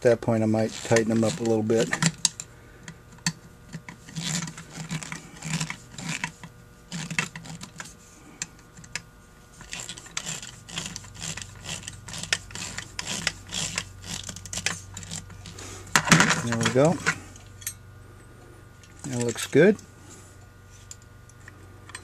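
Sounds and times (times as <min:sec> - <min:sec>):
screwdriver scraping and clicking: 0:00.5 - 0:02.5, 0:03.1 - 0:17.6.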